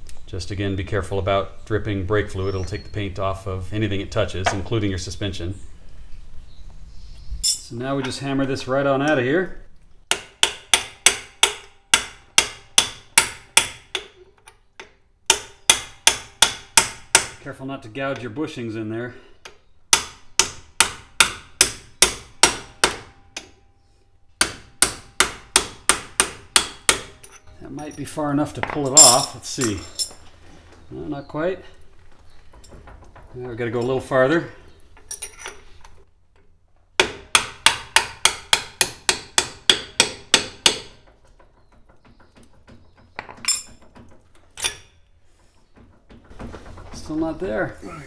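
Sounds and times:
hammer striking metal: 0:10.1 - 0:14.1.

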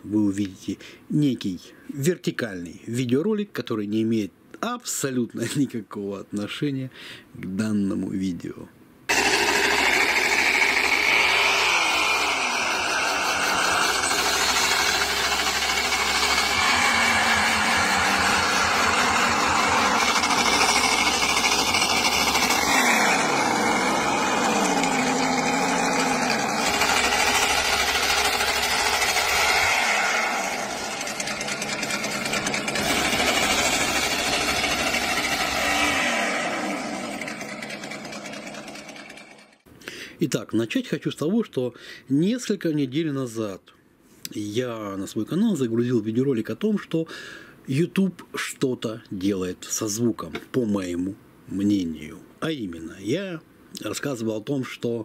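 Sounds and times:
model vehicle engine running: 0:09.1 - 0:39.6.

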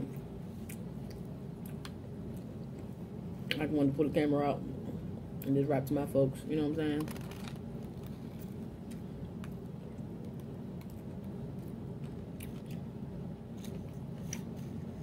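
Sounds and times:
steady low hum: 0:00.0 - 0:15.0
person chewing: 0:10.8 - 0:12.9.

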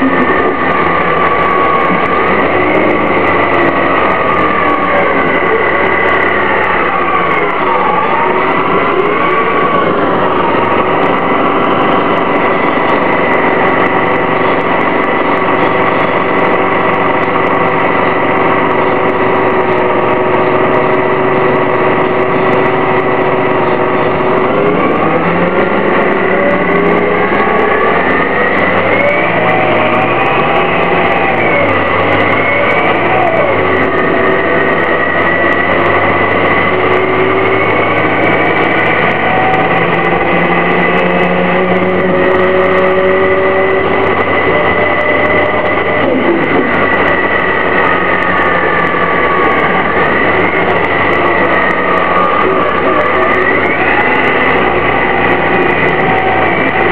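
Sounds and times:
bus engine idling: 0:00.0 - 0:56.9
engine and drivetrain whine: 0:00.0 - 0:56.9.

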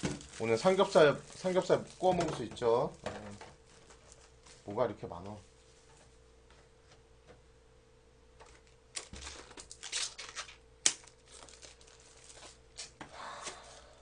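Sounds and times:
plastic bottles clacking together: 0:00.0 - 0:03.6
plastic wrapping crinkling: 0:00.0 - 0:04.8, 0:08.4 - 0:14.0.

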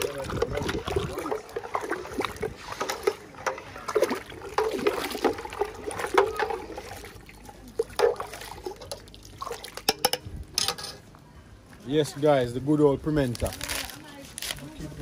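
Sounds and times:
water splashing and trickling: 0:00.0 - 0:10.5.

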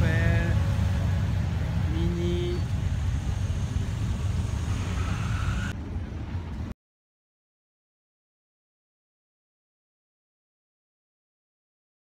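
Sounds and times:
car engines rumbling: 0:00.0 - 0:06.8.

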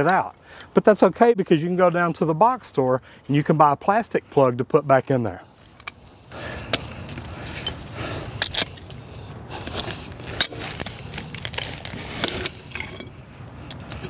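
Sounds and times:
wrench clicking and scraping metal: 0:06.7 - 0:09.0.

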